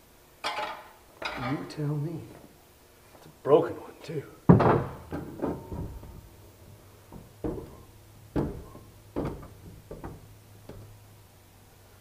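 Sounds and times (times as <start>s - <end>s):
door knocks and clunks: 4.5s - 6.4s, 7.1s - 11.0s.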